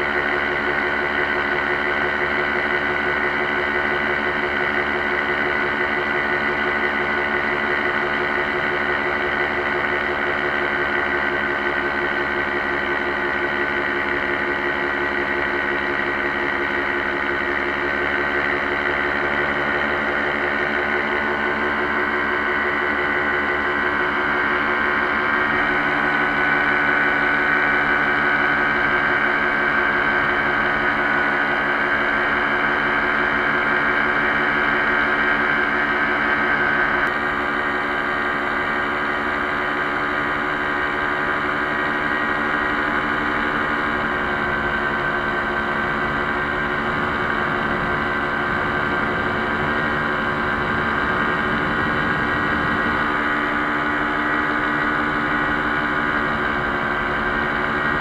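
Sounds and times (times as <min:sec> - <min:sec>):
paramotor engine and propeller: 0:00.0 - 0:58.0.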